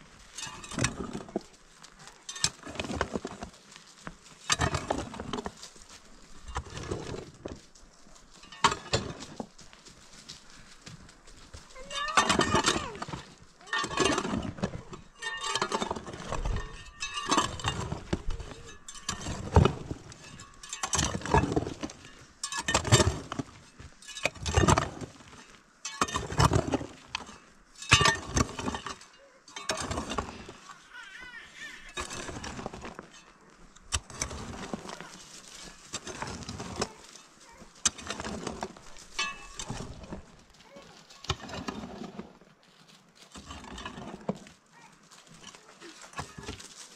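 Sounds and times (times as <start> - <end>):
hoe scraping soil: 0.0 - 46.9
hoe chopping stony earth: 0.4 - 1.5, 2.3 - 3.6, 4.4 - 5.6, 6.4 - 7.6, 8.6 - 9.5, 12.0 - 30.7, 31.9 - 33.0, 33.8 - 42.3.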